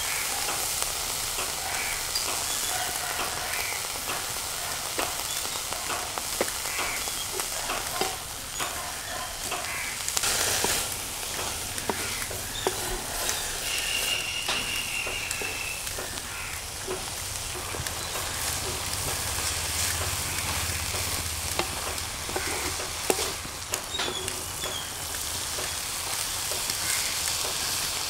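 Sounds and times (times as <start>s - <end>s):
food sizzling in a pan: 0.0s - 28.0s
wooden spatula scraping: 6.4s - 26.0s.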